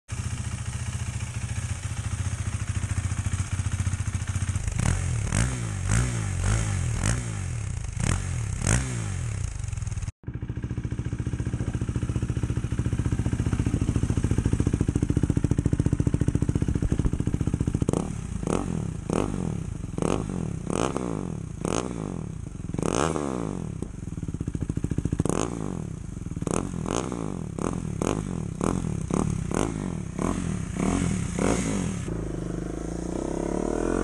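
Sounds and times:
motorcycle engine idling: 0:00.1 - 0:34.0.

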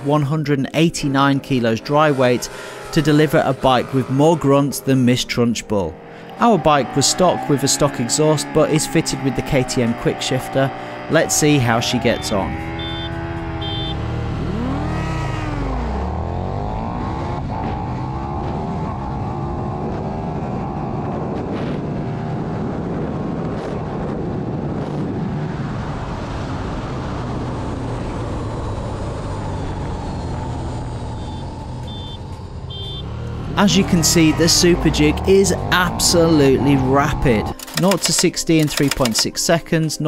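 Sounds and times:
motorcycle engine revving: 0:01.5 - 0:05.0, 0:05.9 - 0:38.2
wind rush at high speed: 0:17.1 - 0:31.4
sharp clicks: 0:37.5 - 0:39.4.

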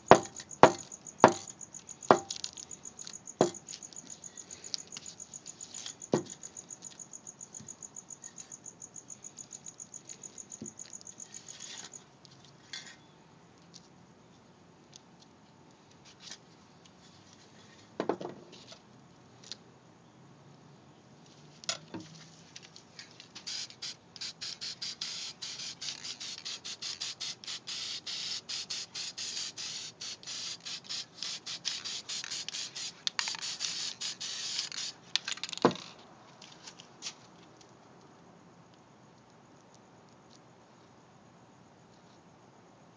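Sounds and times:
spray paint hissing in spurts: 0:23.3 - 0:35.9.

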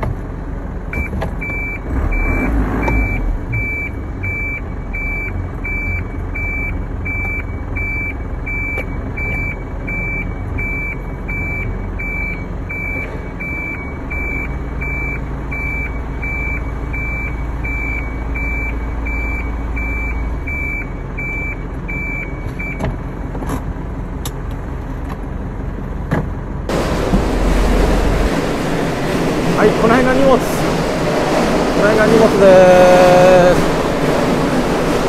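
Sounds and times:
truck engine running: 0:00.0 - 0:35.0
truck back-up alarm beeping: 0:00.9 - 0:23.0
loud rushing noise: 0:26.7 - 0:35.0.

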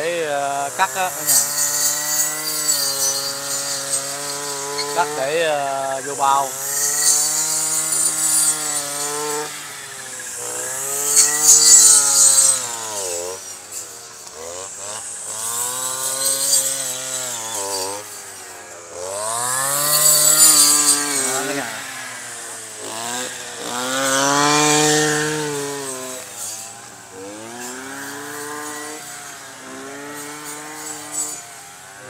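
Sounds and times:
brush cutter engine revving: 0:00.0 - 0:32.0.

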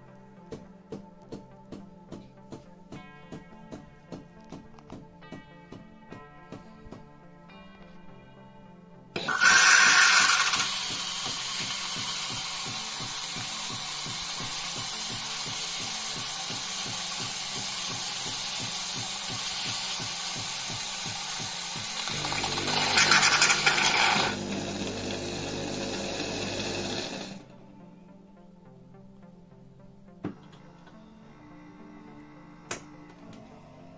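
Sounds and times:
pump pulsing: 0:09.2 - 0:27.4
espresso machine frothing milk: 0:09.2 - 0:27.5.

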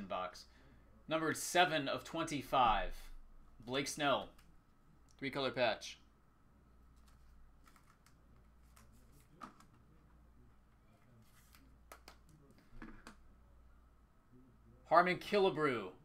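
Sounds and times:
low room hum: 0:00.0 - 0:16.0
faint clicks and taps: 0:11.0 - 0:13.2.

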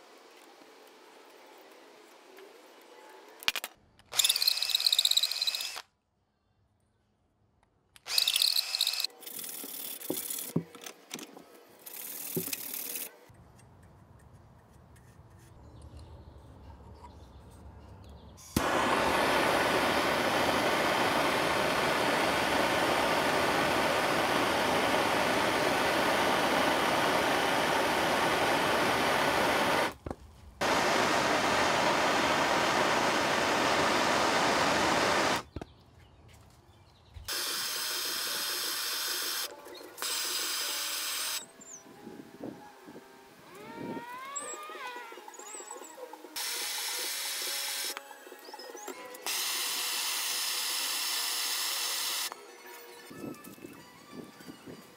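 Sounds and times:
soldering torch flame hissing: 0:18.6 - 0:30.0, 0:30.6 - 0:35.5.

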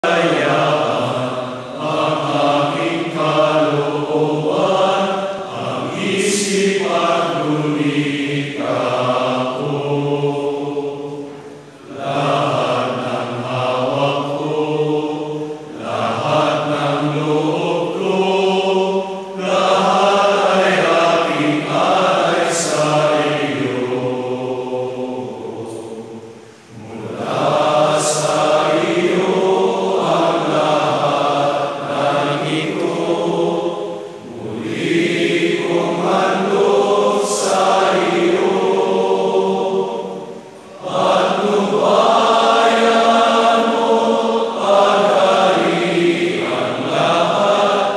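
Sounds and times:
group of men singing: 0:00.0 - 0:11.3, 0:11.9 - 0:26.1, 0:26.7 - 0:47.9.

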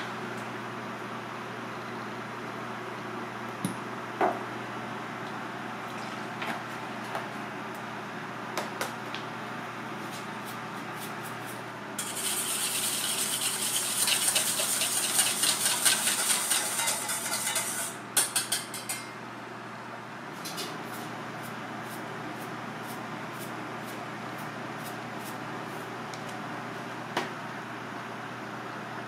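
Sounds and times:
steady low hum: 0:00.0 - 0:29.0
wire whisk rattling in metal bowl: 0:12.0 - 0:19.0.

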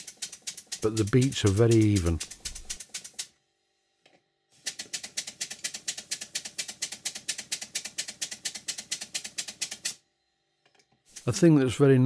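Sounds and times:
model steam engine exhaust beats: 0:00.0 - 0:03.2.

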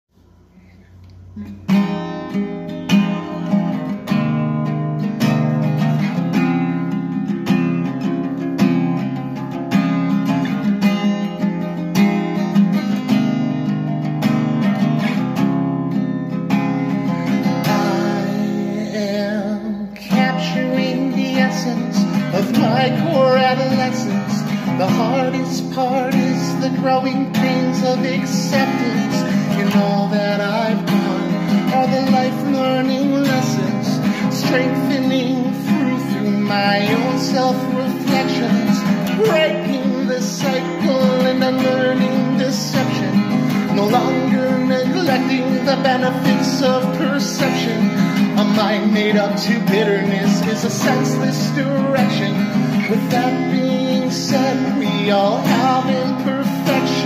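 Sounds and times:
acoustic guitar strumming: 0:00.2 - 0:57.0
man singing: 0:16.7 - 0:57.0.

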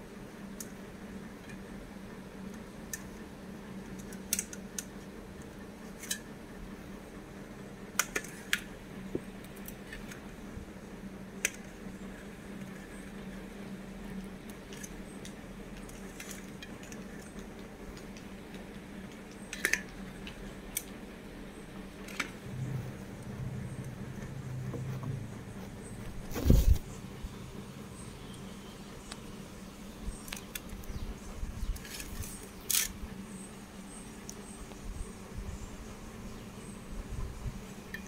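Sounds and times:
low hum: 0:08.8 - 0:38.0.

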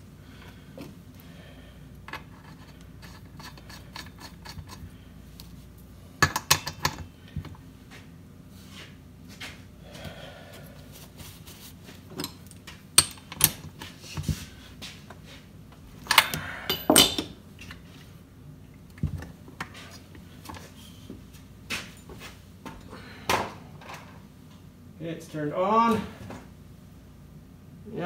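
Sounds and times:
tools clattering on workbench: 0:16.1 - 0:17.4.

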